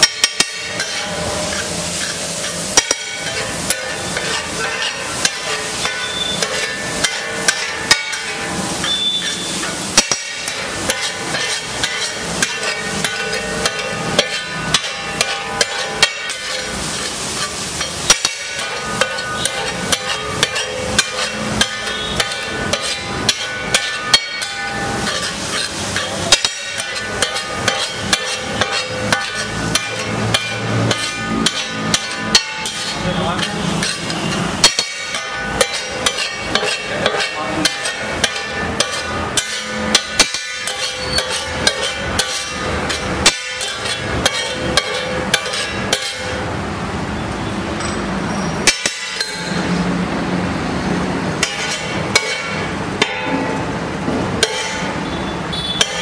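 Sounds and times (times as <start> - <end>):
steady hiss: 0.0 - 45.6
spatula clacking on iron griddle: 0.0 - 46.9, 47.8 - 49.8, 51.2 - 56.0.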